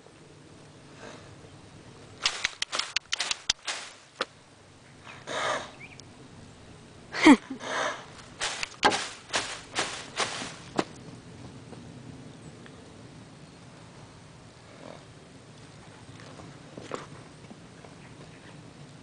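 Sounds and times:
footsteps crunching on dirt: 0:02.3 - 0:04.3, 0:08.2 - 0:11.1.

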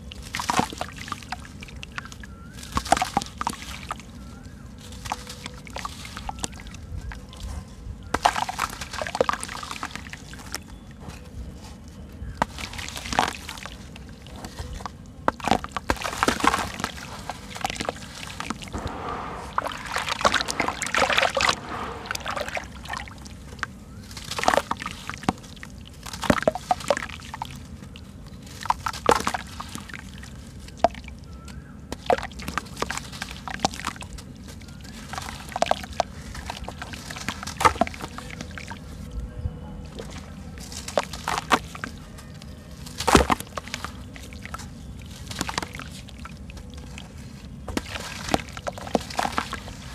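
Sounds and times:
hands splashing in water: 0:17.7 - 0:23.4.

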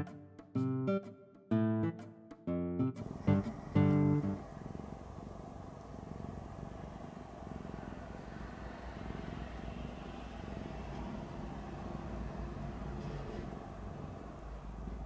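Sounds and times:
cat purring: 0:03.0 - 0:11.1.

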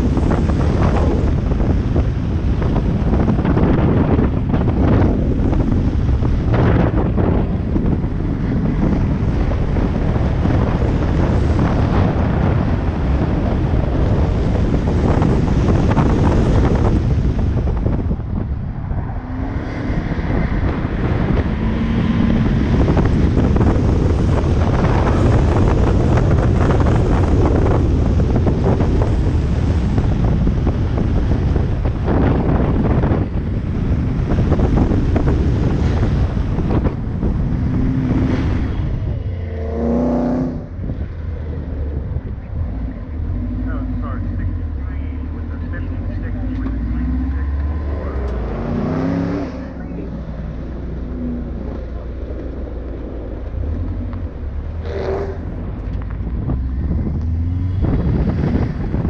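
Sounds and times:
car engine under hard driving: 0:00.0 - 0:59.0
wind buffeting on microphone: 0:00.0 - 0:59.0.

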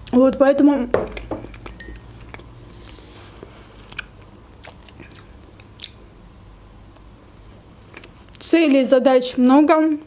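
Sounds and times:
chewing sponge cake: 0:03.4 - 0:06.0, 0:06.8 - 0:08.5.

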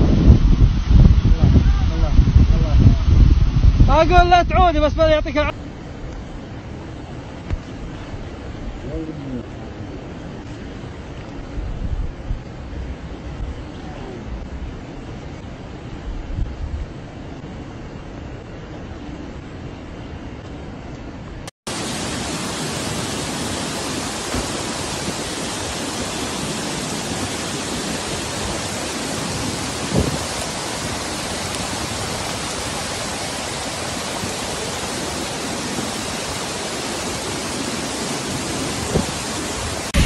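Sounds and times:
floodwater rushing: 0:21.7 - 0:40.0.

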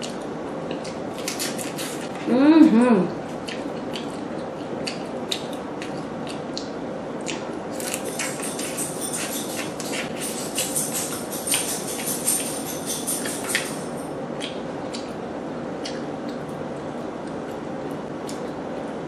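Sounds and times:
wet chewing and mouth smacks: 0:03.3 - 0:08.9, 0:14.4 - 0:15.2, 0:15.8 - 0:16.6.

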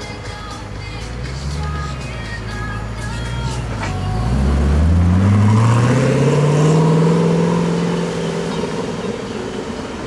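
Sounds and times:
sports car accelerating: 0:03.1 - 0:10.0.

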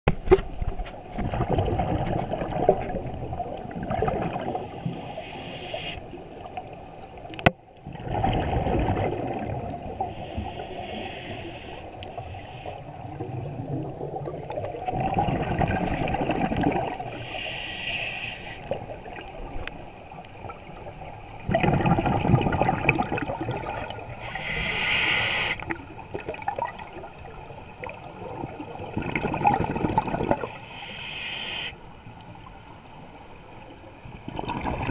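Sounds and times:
regulator hiss on inhale: 0:04.6 - 0:06.2, 0:10.0 - 0:13.1, 0:17.1 - 0:18.8, 0:24.1 - 0:25.7, 0:30.4 - 0:31.9
diver exhaling bubbles: 0:21.5 - 0:27.0, 0:28.2 - 0:30.6, 0:34.3 - 0:34.9.

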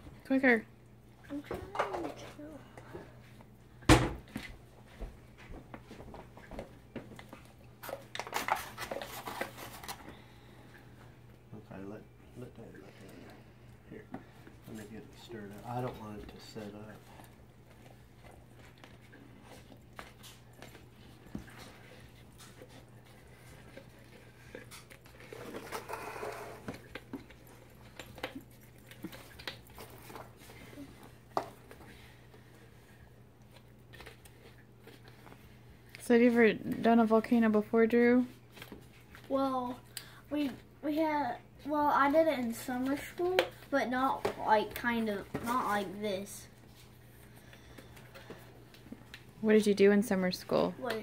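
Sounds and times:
mould mix stirred in a tub: 0:10.7 - 0:51.0.

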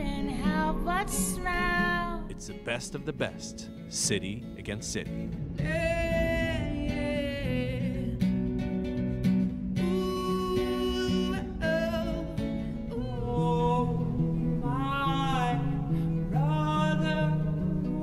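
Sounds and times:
acoustic guitar: 0:00.0 - 0:18.0
man singing: 0:02.2 - 0:07.0, 0:09.8 - 0:12.4, 0:13.0 - 0:18.0.

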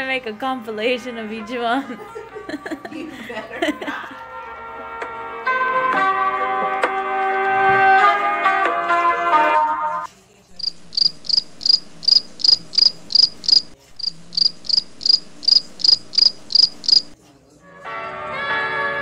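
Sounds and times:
background music: 0:00.0 - 0:10.1, 0:17.6 - 0:19.0
cricket chirping: 0:10.6 - 0:17.2.

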